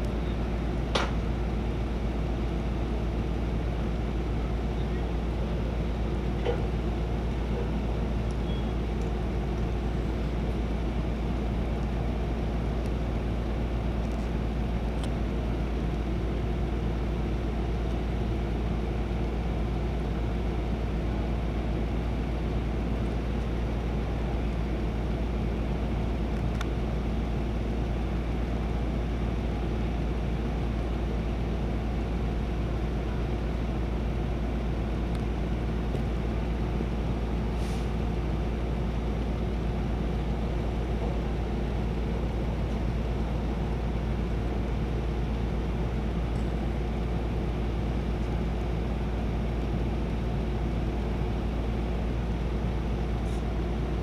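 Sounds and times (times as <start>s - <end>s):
diesel engine idling: 0.0s - 54.0s.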